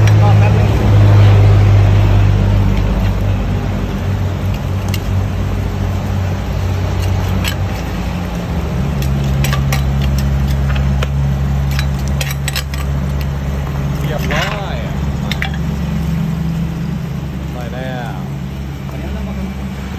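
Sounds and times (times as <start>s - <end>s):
vehicle engine humming: 0.0s - 19.9s
utensil clinking against containers: 6.8s - 16.0s.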